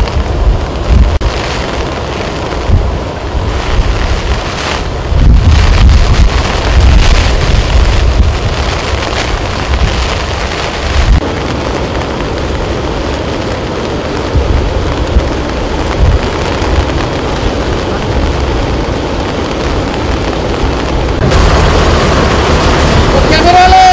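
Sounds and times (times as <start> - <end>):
water rushing through dam spillway: 0.0 - 23.9
wind rumble on microphone: 0.0 - 23.9.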